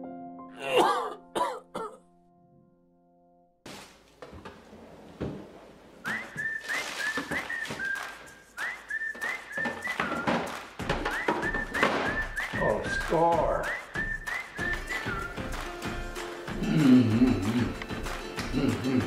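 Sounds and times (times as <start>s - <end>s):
frozen packages rustling: 3.7s - 4.2s, 6.1s - 10.2s
person whistling: 6.0s - 15.7s.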